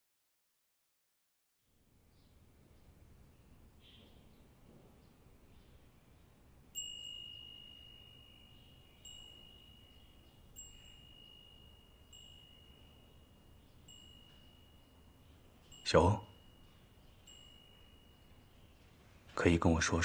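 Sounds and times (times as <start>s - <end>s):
glass wind chime ringing: 6.4s - 19.1s.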